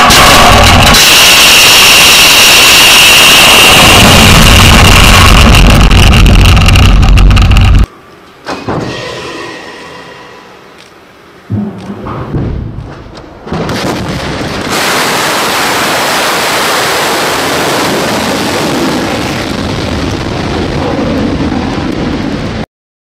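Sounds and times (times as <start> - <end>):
rocket motor roaring: 0.0 - 7.9
sudden blast: 0.0 - 7.9.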